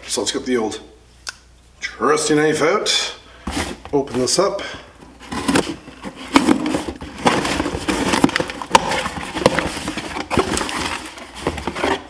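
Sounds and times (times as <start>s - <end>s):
cardboard flaps rustling: 5.0s - 12.0s.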